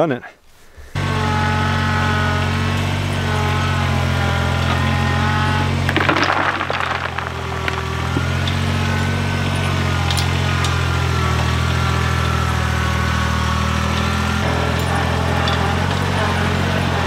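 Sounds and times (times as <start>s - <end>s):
tractor engine running: 1.0s - 17.0s
rocks clattering from bucket: 5.9s - 8.7s.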